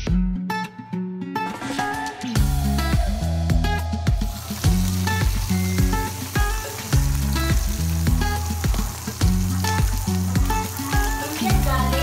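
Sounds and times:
music with bass line: 0:00.0 - 0:12.0
pot boiling hiss: 0:04.1 - 0:12.0.

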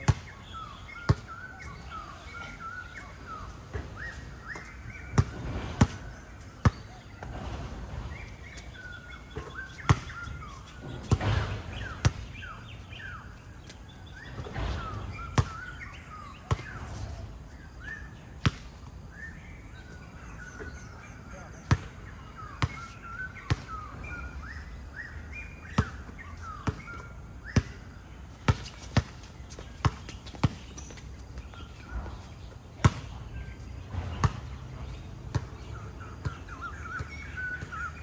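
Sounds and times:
sneakers squeaking on court: 0:00.0 - 0:38.0
basketball bouncing: 0:05.1 - 0:08.7, 0:09.3 - 0:12.4, 0:14.4 - 0:15.7, 0:21.6 - 0:21.9, 0:28.5 - 0:31.0, 0:33.9 - 0:34.5, 0:35.3 - 0:36.4.

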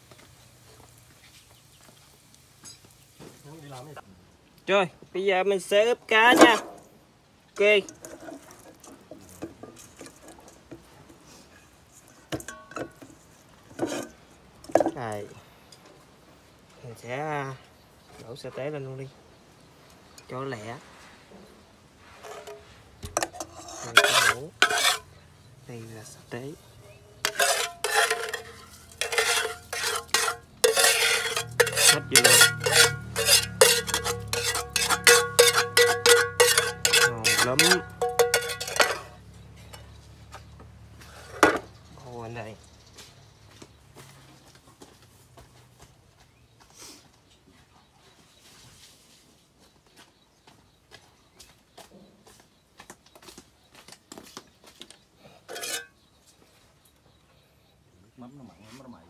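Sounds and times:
metal spoon scraping cookware: 0:12.3 - 0:15.0, 0:22.2 - 0:25.2, 0:27.2 - 0:39.9, 0:55.5 - 0:56.0
utensils and dishes clicking: 0:27.3 - 0:39.3.

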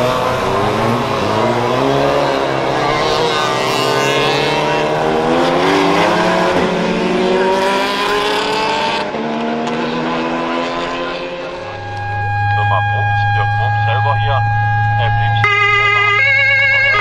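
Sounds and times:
racing cars accelerating past: 0:00.0 - 0:12.9.

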